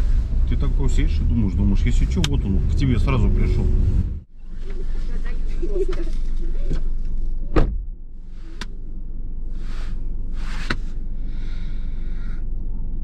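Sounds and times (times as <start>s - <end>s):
car engine idling: 0.0s - 13.0s
soft rustles: 4.4s - 7.4s.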